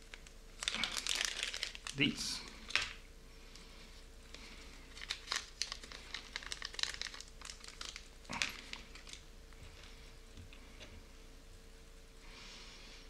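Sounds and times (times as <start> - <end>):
plastic bag crinkling: 0.0 - 3.0, 4.3 - 10.0.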